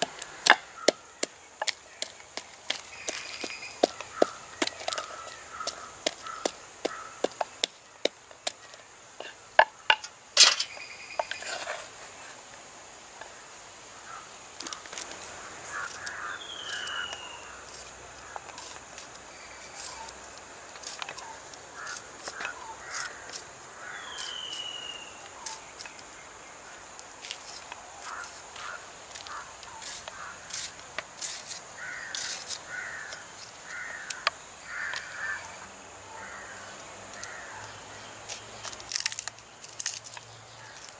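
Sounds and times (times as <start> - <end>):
crows cawing: 3.2 - 7.5, 14.0 - 18.6, 21.2 - 24.4, 28.0 - 30.6, 31.8 - 37.8
bird whistle: 24.1 - 25.2.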